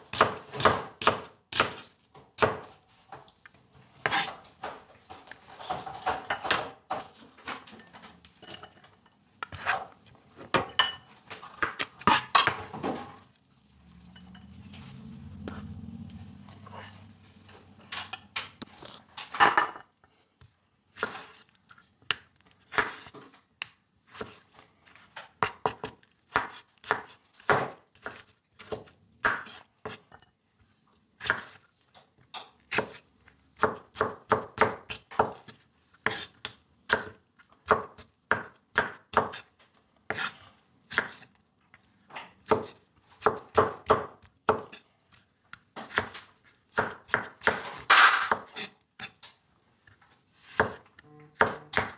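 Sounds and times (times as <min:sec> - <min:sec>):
knife chopping on plastic board: 0:00.1 - 0:02.8, 0:25.4 - 0:30.0, 0:33.6 - 0:39.5, 0:42.4 - 0:44.8, 0:45.8 - 0:49.1, 0:50.4 - 0:51.9.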